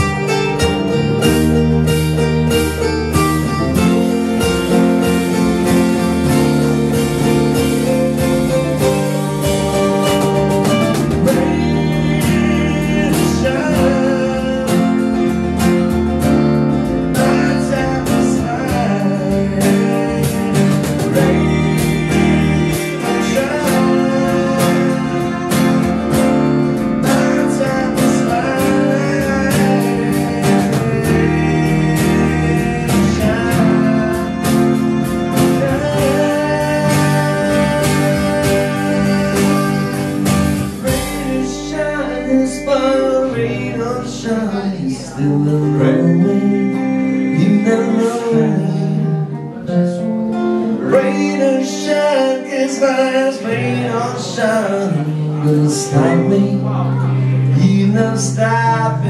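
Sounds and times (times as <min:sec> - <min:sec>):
hand drum beat: 0:00.0 - 0:14.0
person singing: 0:00.0 - 0:59.0
strummed acoustic guitar: 0:00.0 - 0:59.0.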